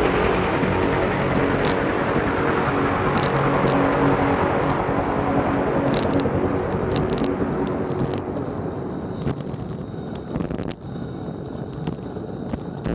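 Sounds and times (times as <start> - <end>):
bike tyres humming on asphalt: 0.0 - 10.3
wind rushing over microphone: 0.0 - 12.9.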